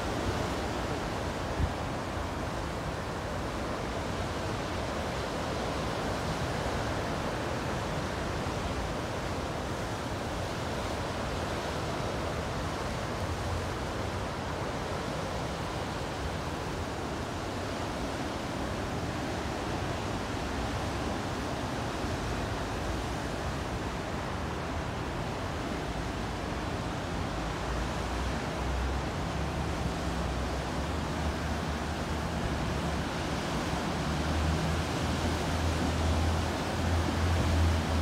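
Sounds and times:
ocean surf over rocks: 0:00.0 - 0:38.0.

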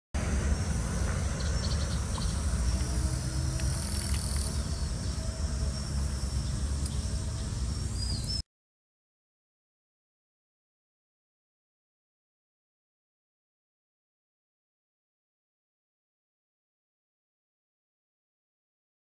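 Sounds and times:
faint insects: 0:00.2 - 0:08.4
wind rumble on microphone: 0:00.2 - 0:08.4
bird chirp: 0:00.4 - 0:08.4.

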